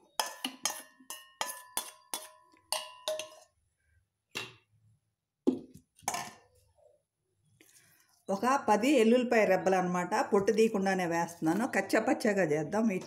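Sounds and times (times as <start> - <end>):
metal bowl clinking on steel jar: 0.0 - 3.6.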